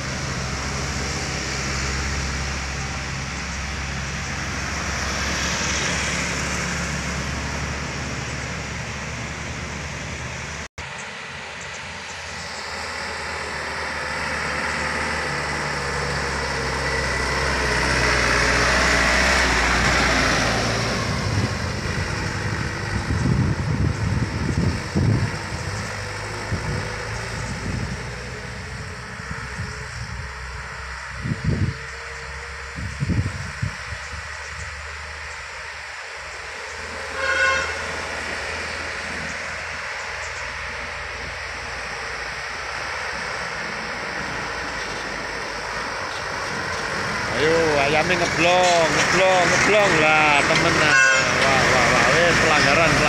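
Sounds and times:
truck diesel engines: 0.0s - 53.0s
wind buffeting microphone: 19.2s - 34.9s.

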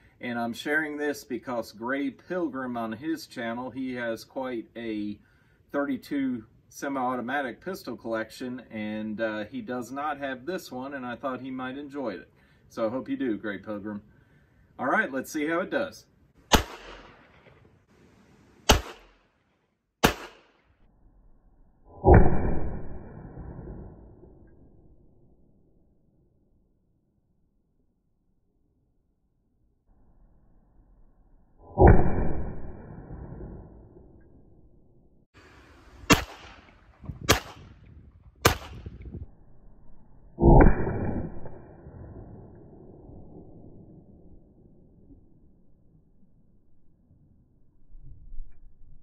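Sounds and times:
deep ringing gunshot report: 16.5s - 17.5s, 18.7s - 19.2s, 20.0s - 20.6s, 36.1s - 37.8s, 38.4s - 39.0s
pistol shots: 16.5s - 17.5s, 18.7s - 19.2s, 20.0s - 20.6s, 36.1s - 37.7s, 38.4s - 38.9s.

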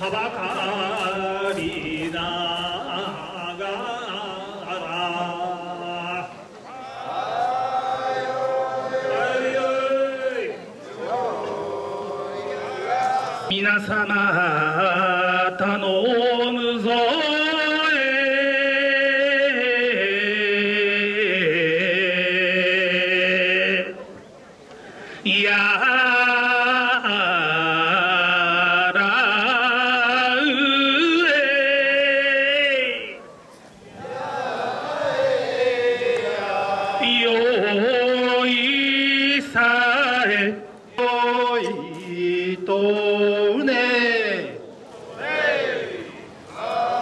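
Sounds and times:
man chanting: 0.0s - 6.4s, 12.2s - 24.0s, 25.2s - 33.3s, 35.6s - 44.6s
men chanting long wavering notes: 0.0s - 15.6s, 34.0s - 39.1s.

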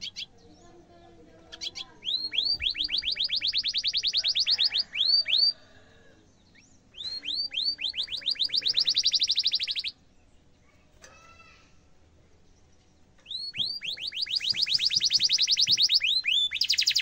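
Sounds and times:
canary trilling: 0.0s - 0.4s, 1.4s - 5.6s, 7.0s - 10.0s, 13.2s - 17.0s.

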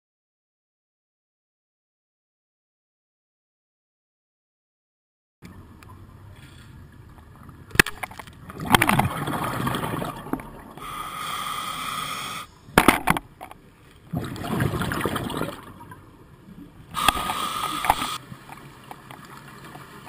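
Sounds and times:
exhaled bubbles gurgling: 8.4s - 12.4s, 14.1s - 18.3s
regulator hissing inhale: 10.8s - 12.7s, 17.0s - 18.2s.

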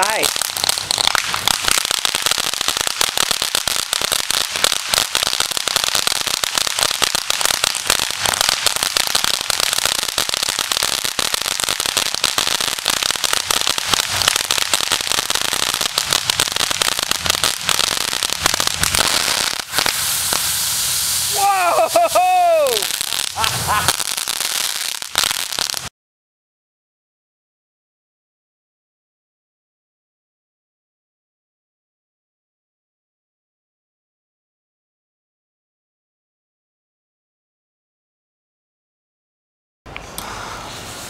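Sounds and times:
fireworks crackling and hissing: 0.0s - 25.9s, 39.9s - 41.0s.

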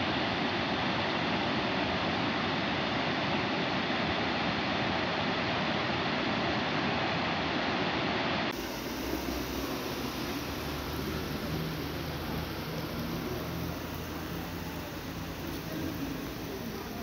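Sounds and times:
rain hiss: 8.0s - 17.0s.

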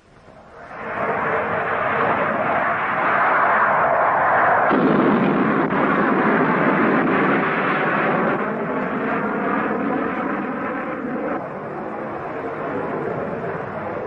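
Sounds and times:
jet roaring overhead: 0.0s - 14.0s
bomb explosion rumble: 0.6s - 10.6s.

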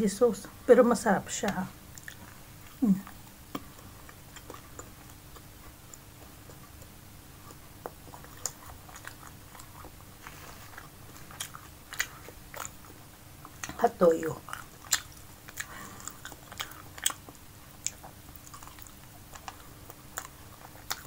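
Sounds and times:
chewing crunchy snack: 1.9s - 13.8s, 14.4s - 21.0s
person humming: 2.8s - 3.1s.

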